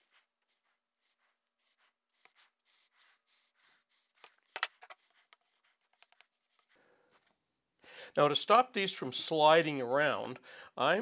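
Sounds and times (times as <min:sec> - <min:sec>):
glue strokes scratching on wood: 0:00.0 - 0:06.8.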